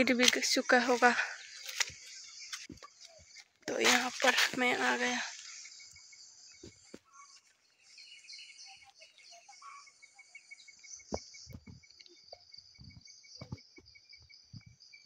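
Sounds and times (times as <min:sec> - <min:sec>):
insects buzzing: 0:00.0 - 0:15.0
regular insect chirp: 0:00.0 - 0:15.0
faint bird calls: 0:04.8 - 0:13.8.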